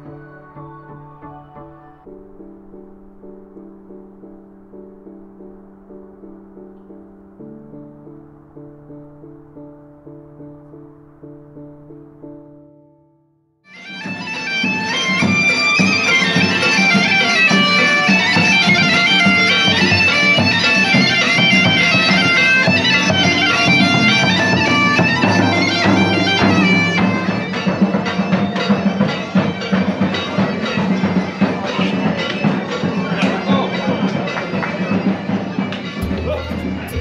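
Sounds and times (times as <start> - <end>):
bagpipes playing: 13.7 - 37.0
drum beating: 14.0 - 37.0.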